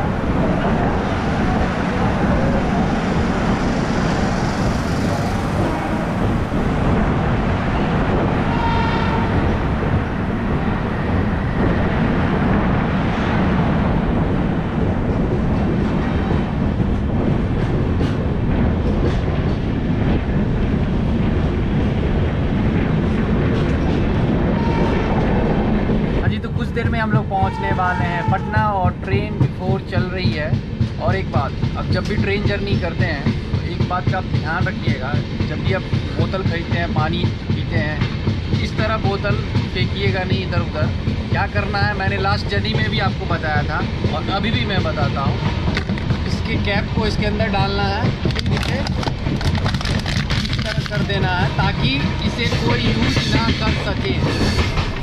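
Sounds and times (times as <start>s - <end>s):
rushing air: 0.0s - 26.3s
train wheels rumbling on rail: 0.0s - 55.0s
rail joint clicks: 28.2s - 55.0s.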